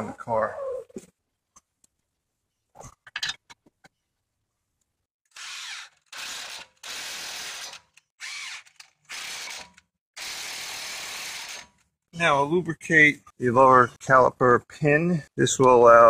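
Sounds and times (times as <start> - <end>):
cordless impact wrench bursts: 5.3 - 11.8.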